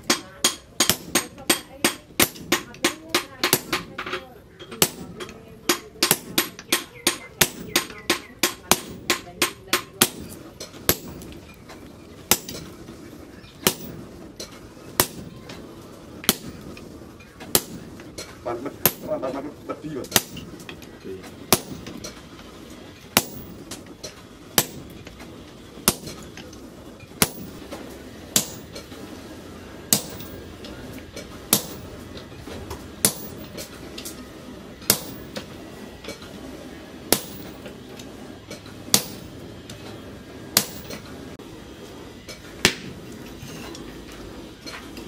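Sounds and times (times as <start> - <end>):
sledgehammer striking hot steel: 0.0 - 4.1, 4.7 - 41.4, 42.3 - 45.0.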